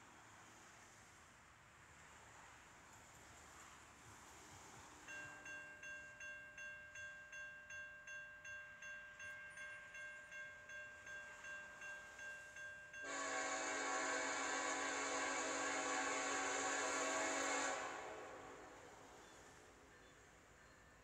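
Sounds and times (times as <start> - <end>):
railroad crossing bell ringing: 5.0 - 16.9
locomotive air horn: 13.0 - 19.2.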